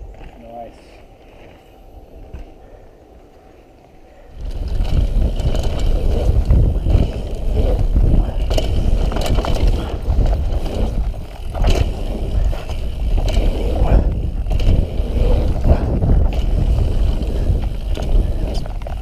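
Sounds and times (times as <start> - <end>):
wind rumble on microphone: 0.0 - 19.0
tyres on dirt: 4.0 - 19.0
bike clattering over bumps: 4.4 - 19.0.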